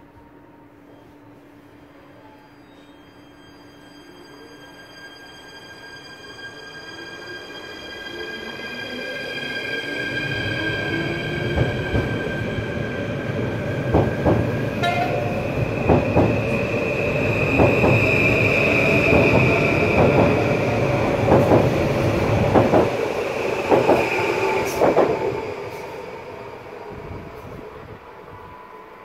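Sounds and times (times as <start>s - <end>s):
train rumble: 10.2s - 28.4s.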